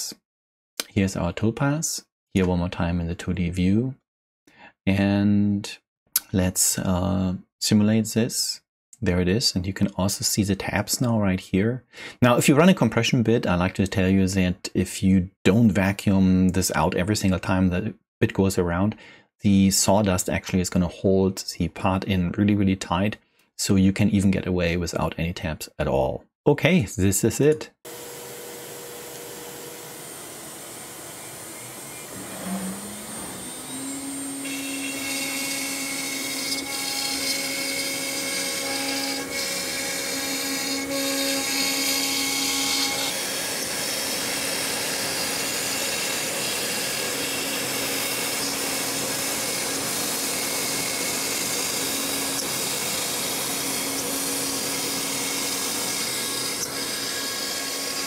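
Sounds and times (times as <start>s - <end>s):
router bit cutting plywood: 27.9s - 58.0s
router spindle whine: 27.9s - 58.0s.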